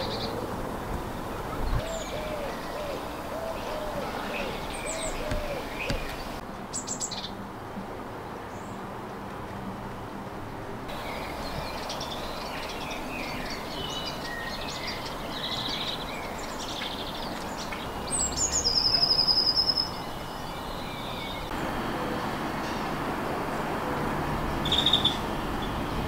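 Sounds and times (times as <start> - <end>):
songbirds chirping and singing: 0.0 - 7.4, 10.9 - 26.0
low background noise: 0.0 - 26.0
loud fast bird trill: 24.6 - 25.8.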